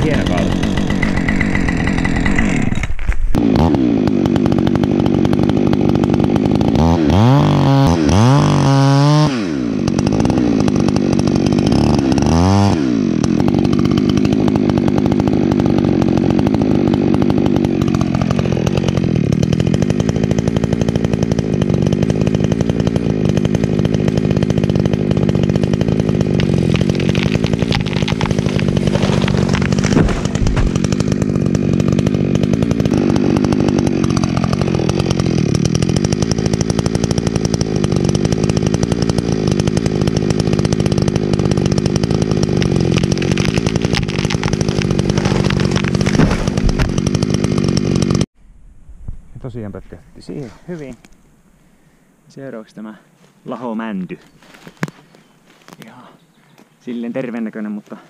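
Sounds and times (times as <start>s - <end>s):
chainsaw revving: 0.0s - 48.3s.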